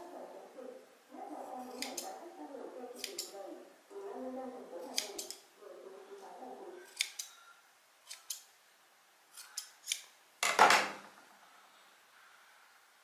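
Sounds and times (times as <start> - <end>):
scissors snipping thread: 1.6 - 2.2, 3.0 - 3.4, 4.8 - 5.4, 6.9 - 7.4, 8.0 - 8.5, 9.3 - 10.1.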